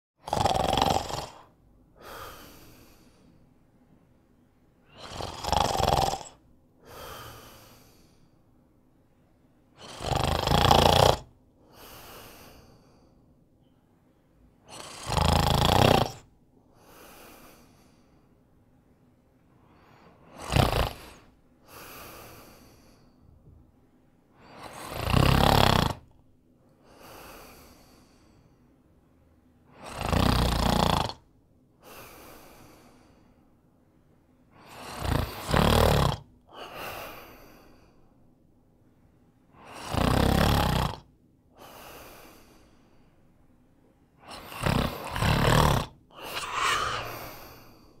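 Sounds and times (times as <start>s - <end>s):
man snoring: 0.2s - 3.2s, 4.9s - 8.2s, 9.8s - 12.9s, 14.7s - 18.0s, 19.8s - 23.2s, 24.4s - 26.1s, 29.7s - 33.2s, 34.6s - 37.8s, 39.6s - 42.8s, 44.2s - 48.0s
soft breath: 1.9s - 5.1s, 6.8s - 9.8s, 11.6s - 14.7s, 16.6s - 24.8s, 26.6s - 29.5s, 31.8s - 35.5s, 36.5s - 40.0s, 41.5s - 48.0s.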